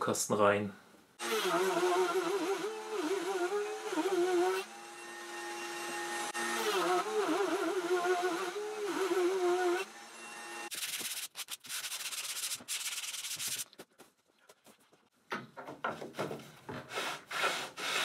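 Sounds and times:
router whining while milling wood: 1.2s - 10.7s.

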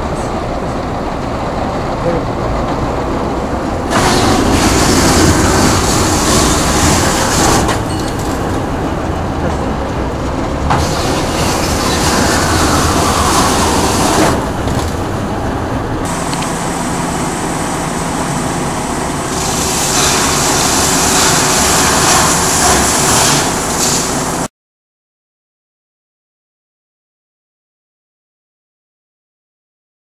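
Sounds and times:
machine clattering: 3.8s - 16.2s.

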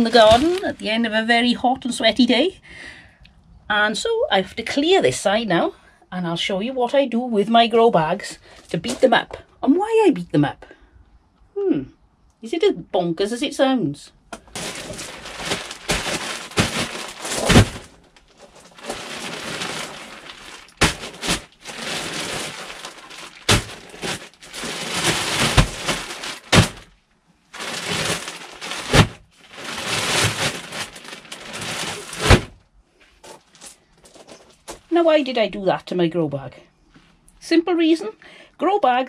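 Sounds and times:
plastic bag crinkling: 0.0s - 1.0s, 14.4s - 32.6s, 33.2s - 34.8s
heavy thuds on gravel: 14.4s - 18.0s, 18.6s - 26.9s, 27.6s - 32.6s.

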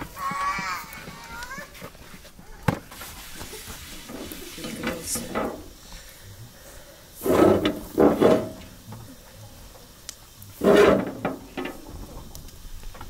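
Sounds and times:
cloth wiping metal griddle: 1.6s - 5.6s, 7.2s - 8.6s, 10.6s - 11.9s.

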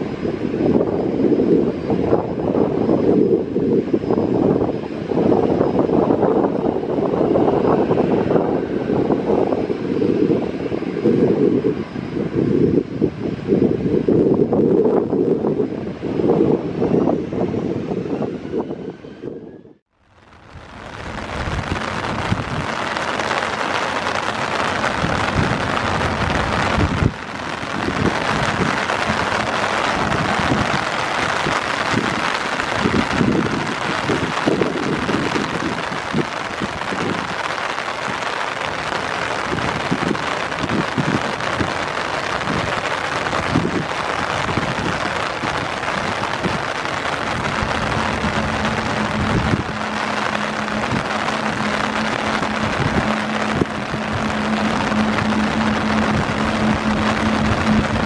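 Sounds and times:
wind buffeting microphone: 0.0s - 58.0s
heavy rain falling: 20.0s - 58.0s
low steady hum: 47.1s - 58.0s.

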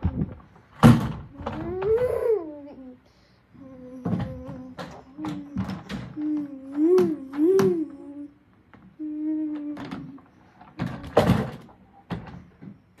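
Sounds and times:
child humming: 1.4s - 3.0s, 3.6s - 8.4s, 9.0s - 11.2s.

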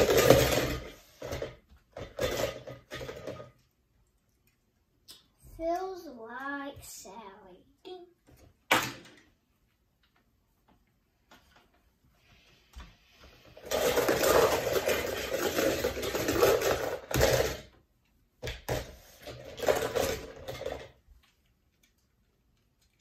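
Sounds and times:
toy cars clattering in plastic bowl: 0.0s - 3.7s, 13.5s - 17.8s, 18.5s - 21.1s.

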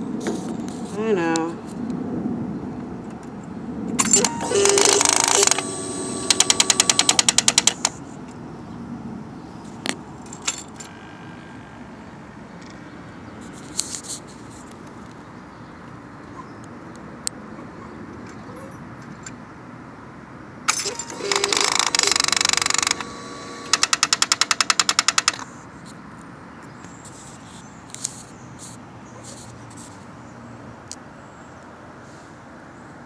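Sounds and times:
electrical buzzing: 4.0s - 8.0s, 20.7s - 23.9s
fast sharp clicks: 4.0s - 8.0s, 20.7s - 25.4s.

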